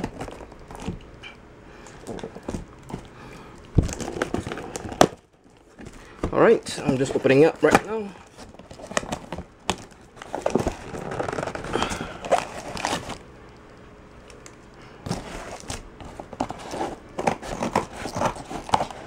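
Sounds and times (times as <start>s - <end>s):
cardboard flaps scraping and rustling: 3.8s - 13.2s, 15.0s - 19.0s.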